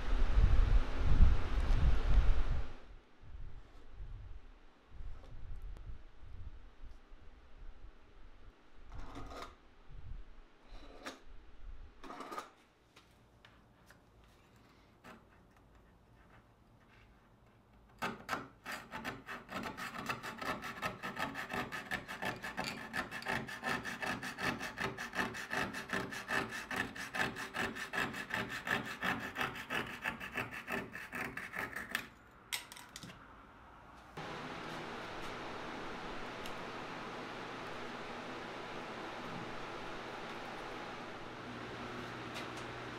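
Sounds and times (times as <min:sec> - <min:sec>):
hand file scraping wood: 0:18.0 - 0:32.1.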